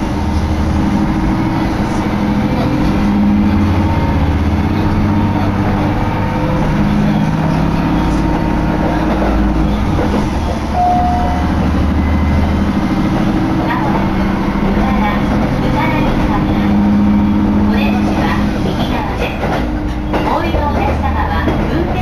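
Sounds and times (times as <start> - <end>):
railcar engine drone: 0.0 - 22.0
wheels running on rails: 0.0 - 22.0
short high tone: 10.8 - 12.4.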